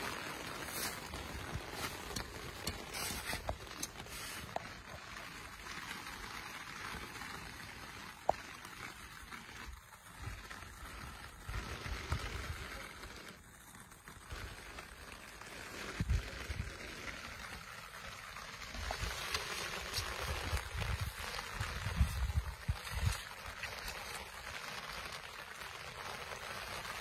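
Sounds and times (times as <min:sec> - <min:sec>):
steady rain falling: 0:00.0 - 0:27.0
low rumbles on microphone: 0:18.7 - 0:23.9.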